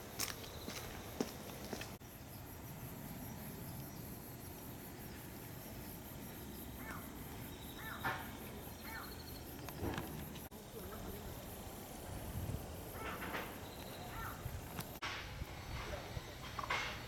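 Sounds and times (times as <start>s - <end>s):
footsteps: 0.0s - 2.0s
insects chirping: 0.0s - 17.0s
bird chirps: 6.8s - 10.0s.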